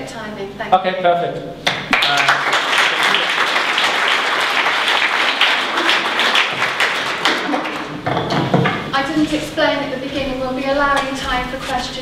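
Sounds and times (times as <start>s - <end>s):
audience applauding: 1.7s - 8.2s.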